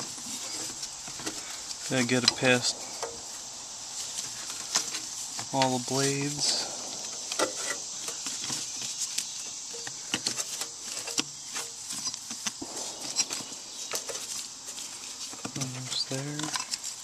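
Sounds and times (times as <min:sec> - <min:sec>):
fan belt clicking and rubbing: 0:04.0 - 0:12.8.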